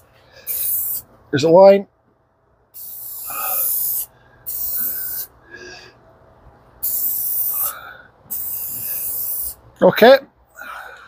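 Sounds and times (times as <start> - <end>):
spray paint can hissing: 0.5 - 1.0, 2.8 - 5.3, 6.8 - 7.7, 8.3 - 9.6.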